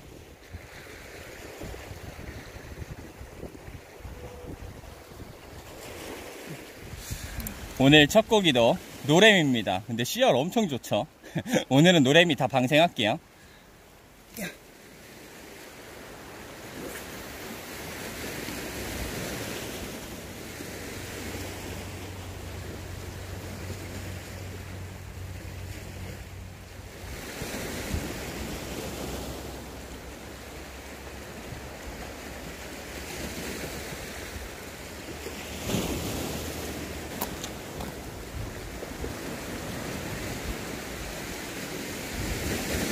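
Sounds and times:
wind on microphone: 0.0s - 7.8s, 35.7s - 41.3s
sea waves washing on shore: 0.0s - 42.9s.

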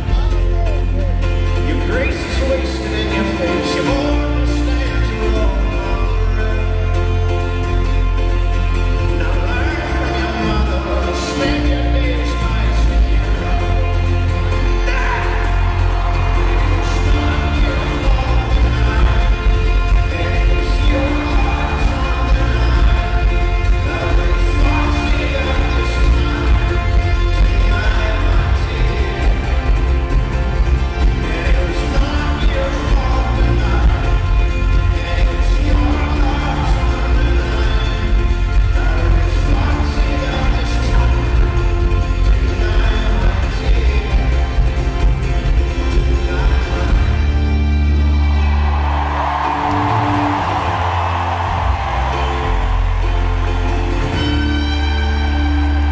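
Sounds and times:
folk-rock band playing live: 0.0s - 55.9s
upright double bass: 0.0s - 55.9s.

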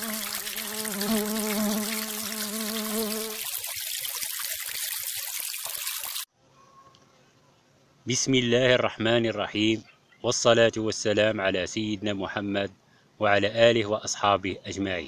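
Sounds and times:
bee buzzing in flight: 0.0s - 3.7s.

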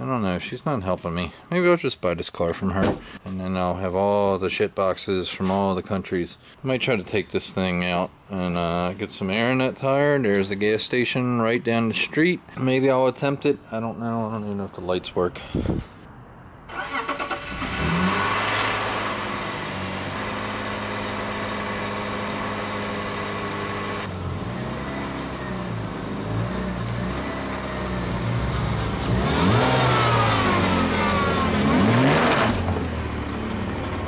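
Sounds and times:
car engine idling and revving: 17.0s - 34.0s.

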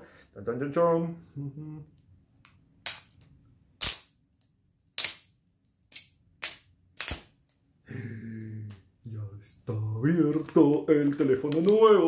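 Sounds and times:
man speaking: 7.9s - 12.0s.

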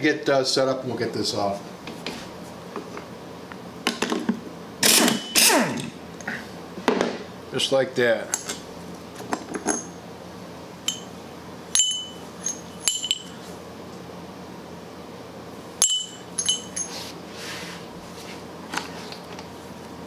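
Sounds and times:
metallic clinks of tools and parts: 11.8s - 13.4s, 15.8s - 17.0s.

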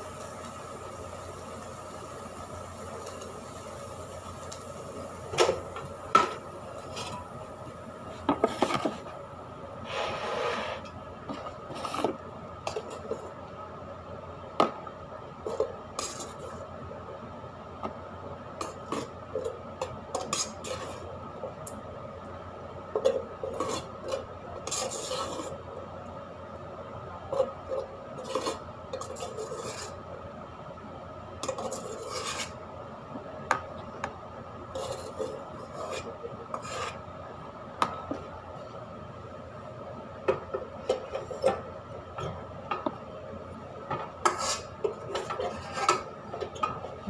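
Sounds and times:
steady background hum: 0.0s - 47.0s
rice paddle scraping metal pot: 9.9s - 10.9s, 23.5s - 25.6s, 28.2s - 30.0s, 31.4s - 32.6s, 34.7s - 37.0s, 44.2s - 46.0s.

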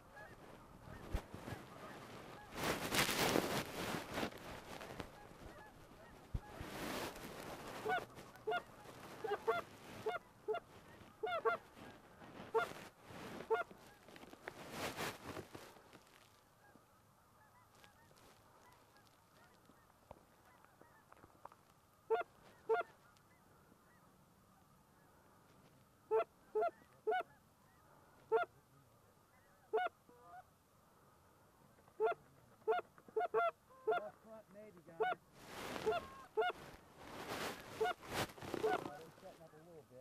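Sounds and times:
goose clucking: 0.0s - 2.6s, 4.7s - 6.7s, 7.6s - 12.7s, 13.4s - 14.0s, 22.1s - 25.1s, 26.1s - 28.6s, 29.3s - 30.5s, 31.9s - 35.2s, 35.8s - 36.8s, 37.4s - 39.6s
goose honking: 0.1s - 2.6s, 4.9s - 6.6s, 7.8s - 12.8s, 13.4s - 14.0s, 22.1s - 25.1s, 26.1s - 28.6s, 29.3s - 30.5s, 32.0s - 35.2s, 35.8s - 36.7s, 37.5s - 39.6s.

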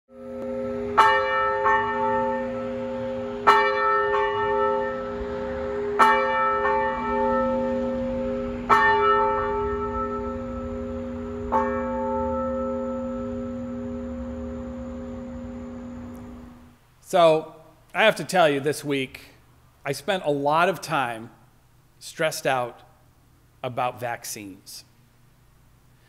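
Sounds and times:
church bell tolling: 0.1s - 16.7s.

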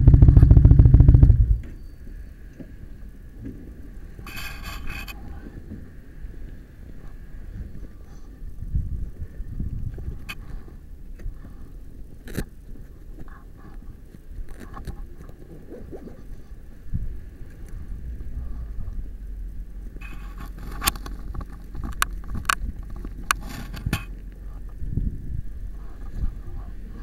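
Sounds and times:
low steady rumble: 0.0s - 27.0s
camera handling rubbing and scraping: 4.2s - 5.2s, 20.0s - 24.4s.

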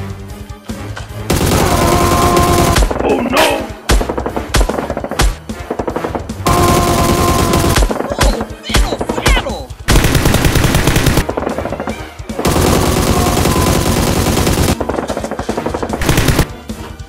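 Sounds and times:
automatic gunfire: 1.3s - 3.0s, 5.9s - 8.4s, 9.9s - 11.7s, 12.4s - 16.5s.

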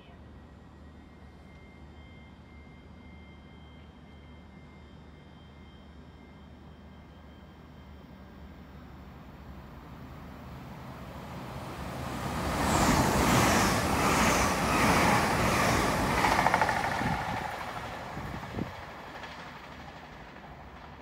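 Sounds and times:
train wheels rushing on rail: 10.0s - 21.0s.

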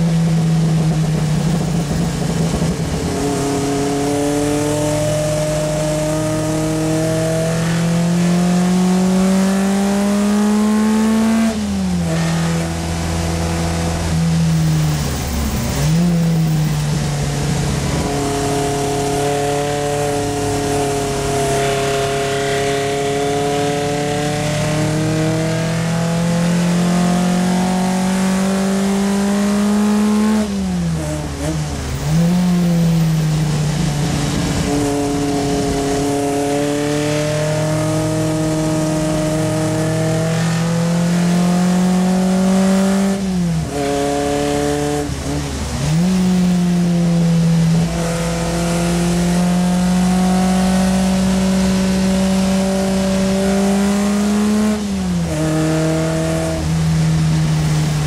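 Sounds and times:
car engine revving under load: 0.0s - 58.0s.

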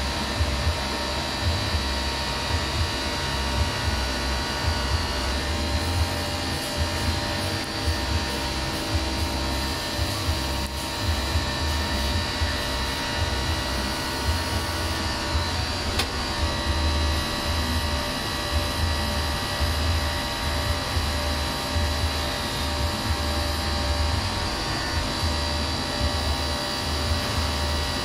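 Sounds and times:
lathe machine hum: 0.0s - 28.0s
whining tones: 0.0s - 28.0s
sharp click: 15.9s - 16.2s.

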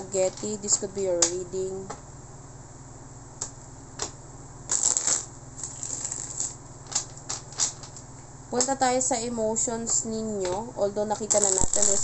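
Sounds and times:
cards rustling: 4.7s - 8.0s.

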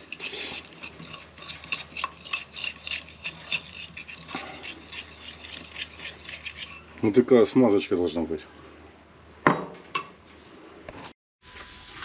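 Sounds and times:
fork scraping and clinking dish: 0.0s - 6.9s.

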